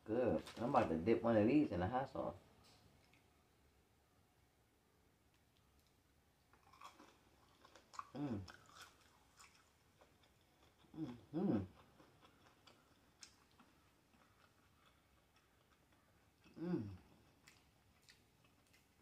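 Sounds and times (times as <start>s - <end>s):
person chewing crunchy food: 6.5s - 19.0s
person humming mmm: 8.1s - 8.5s, 10.9s - 11.8s, 16.5s - 17.1s.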